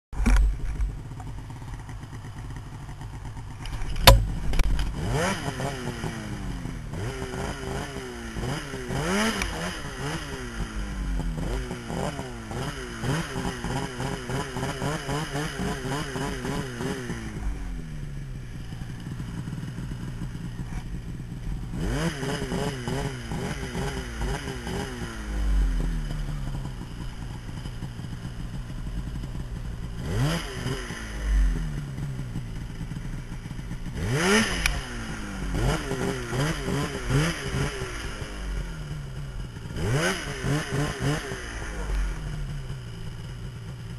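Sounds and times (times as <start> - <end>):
sharp knock: 3.8 - 4.9
snowmobile engine revving: 4.0 - 17.9, 18.7 - 29.2, 29.8 - 43.9.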